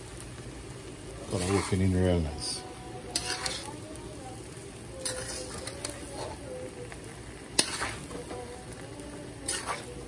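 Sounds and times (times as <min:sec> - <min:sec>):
rice sizzling: 0:00.0 - 0:10.0
spoon scraping a wok: 0:01.2 - 0:01.9, 0:03.0 - 0:03.9, 0:04.9 - 0:06.5, 0:07.4 - 0:10.0
spoon clanking against pan: 0:03.1 - 0:03.7, 0:05.0 - 0:06.4, 0:07.5 - 0:08.4.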